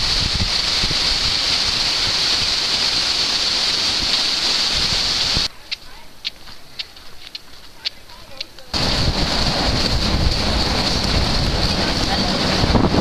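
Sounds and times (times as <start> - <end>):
waterfall roaring: 0.0 - 5.5, 8.7 - 13.0
wind on microphone: 0.0 - 5.5, 8.7 - 13.0.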